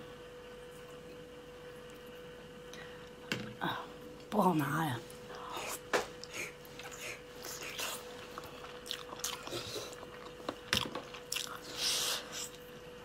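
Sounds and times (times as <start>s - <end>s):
faint steady hum: 0.0s - 13.0s
person chewing and biting: 5.6s - 12.7s.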